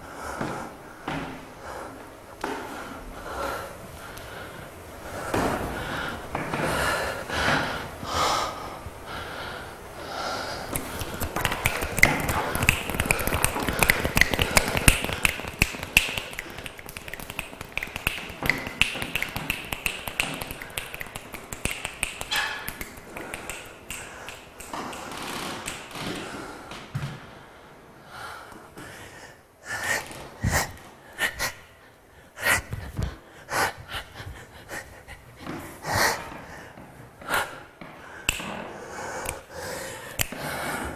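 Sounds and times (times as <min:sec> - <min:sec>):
rapid clicks and taps: 0:10.7 - 0:26.0
breathy gasps: 0:28.1 - 0:40.9.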